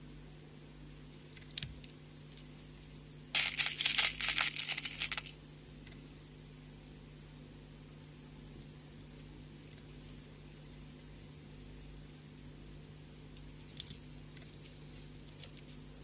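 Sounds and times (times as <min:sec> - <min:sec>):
faint steady hum: 0:00.0 - 0:16.0
beads rattling and clicking: 0:03.3 - 0:05.4.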